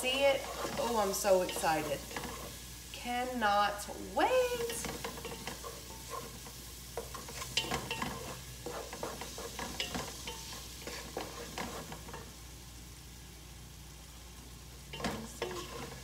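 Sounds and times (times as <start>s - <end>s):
wooden spoon scraping pot: 0.0s - 2.6s, 4.4s - 12.2s, 15.0s - 16.0s
onions sizzling in oil: 0.0s - 16.0s.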